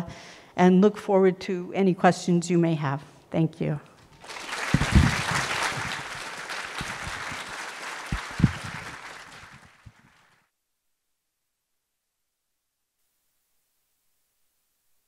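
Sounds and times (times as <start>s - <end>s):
audience applauding: 4.1s - 10.4s
microphone handling thumps: 4.8s - 6.0s, 8.1s - 9.0s.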